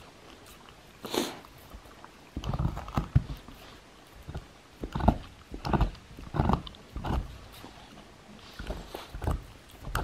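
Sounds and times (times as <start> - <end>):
dog teeth gnawing on wood: 1.7 - 10.0.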